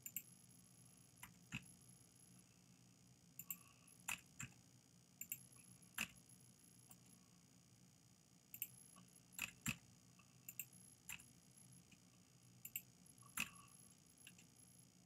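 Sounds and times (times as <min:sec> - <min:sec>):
faint low hum: 0:00.0 - 0:15.0
mouse and keyboard clicks: 0:12.6 - 0:13.6.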